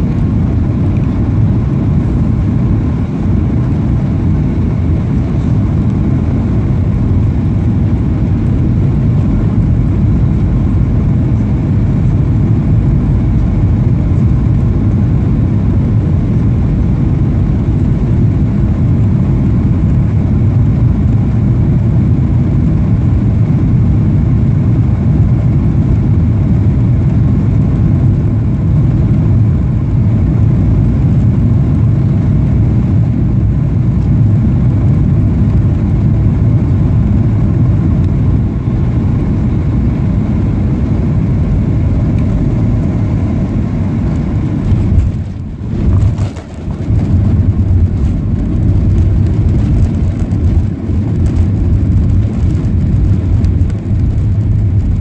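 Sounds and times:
airplane cabin engine rumble: 0.0 - 55.0.

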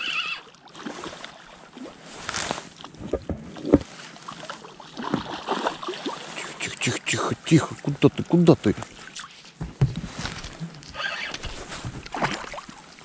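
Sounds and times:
water splashing: 0.0 - 13.0
knocks against small boat: 9.6 - 10.2.

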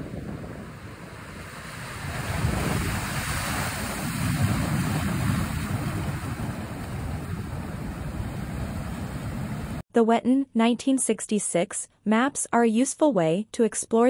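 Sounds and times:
sea waves breaking over rocks: 0.0 - 9.8
wind rumbling on microphone: 0.0 - 9.8.

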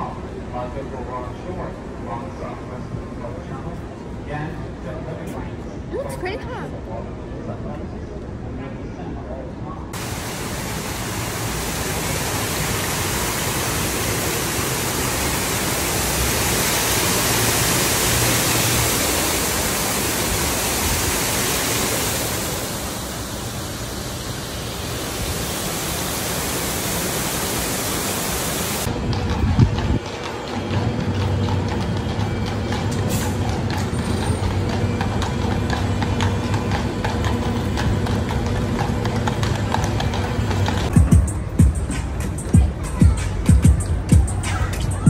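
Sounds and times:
city street sound: 0.0 - 45.0
waterfall rushing: 10.0 - 28.9.

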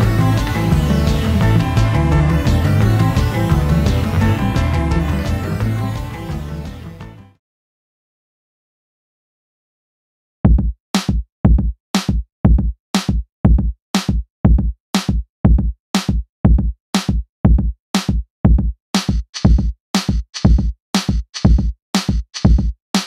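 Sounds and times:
electronic music with drum-machine beat: 0.0 - 7.3, 17.5 - 23.0.

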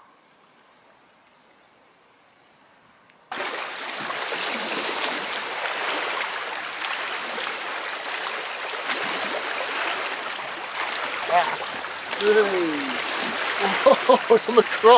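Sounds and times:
small water splashes: 3.3 - 14.9
water rushing over rocks: 3.3 - 14.9.

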